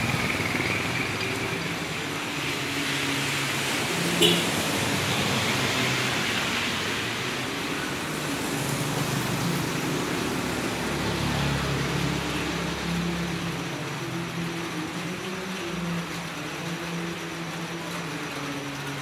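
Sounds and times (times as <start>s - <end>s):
rain on a wet road: 0.0s - 19.0s.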